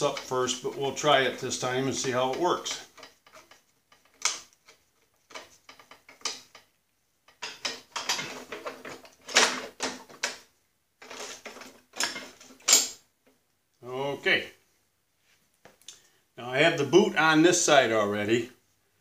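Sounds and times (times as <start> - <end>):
metal parts clicking and clanking: 0.0 - 6.7, 7.3 - 13.0.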